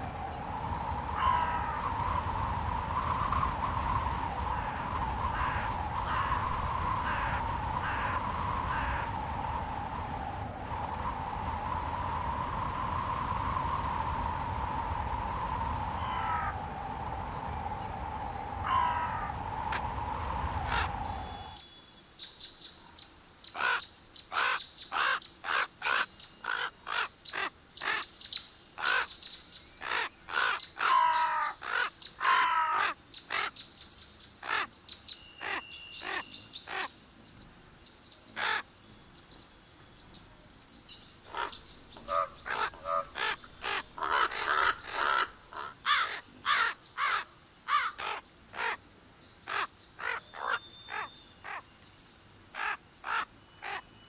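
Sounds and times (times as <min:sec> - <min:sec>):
crows cawing: 0:01.2 - 0:01.7, 0:04.6 - 0:09.1, 0:18.7 - 0:19.3, 0:23.6 - 0:28.0, 0:28.8 - 0:29.1, 0:29.8 - 0:33.5, 0:38.4 - 0:38.6, 0:41.3 - 0:48.8, 0:49.5 - 0:51.6, 0:52.6 - 0:53.8.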